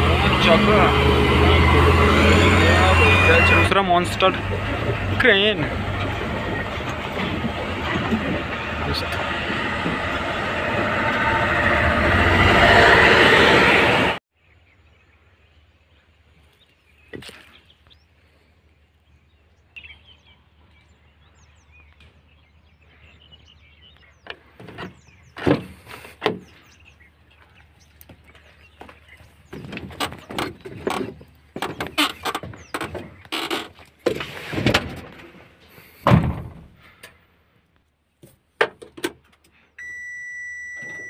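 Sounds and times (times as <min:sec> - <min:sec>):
low hum: 0:00.0 - 0:14.2
truck engine and road noise: 0:00.0 - 0:14.2, 0:16.2 - 0:41.0
faint birds chirping: 0:14.3 - 0:34.1.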